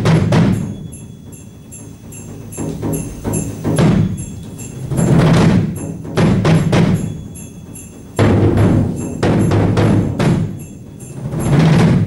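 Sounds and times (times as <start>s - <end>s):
heavy drum strokes: 0.0s - 12.0s
steady high ticking: 0.0s - 12.0s.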